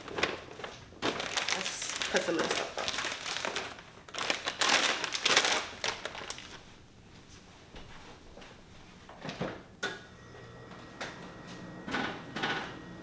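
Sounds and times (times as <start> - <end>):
plastic packaging crinkling: 0.0 - 6.8.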